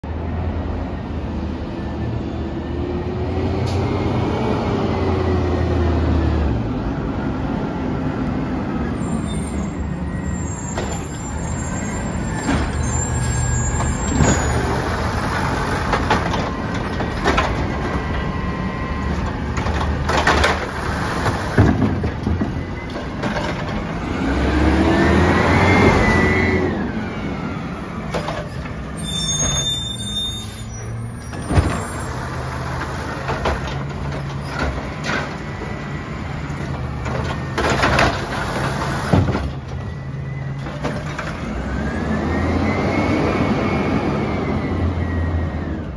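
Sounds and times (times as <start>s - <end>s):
garbage truck engine running: 10.6s - 24.2s.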